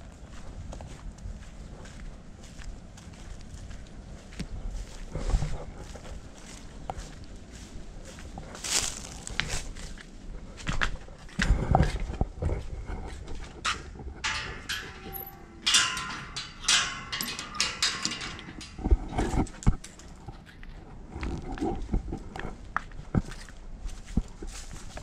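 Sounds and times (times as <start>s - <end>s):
metal gate latch rattling: 13.6s - 20.2s.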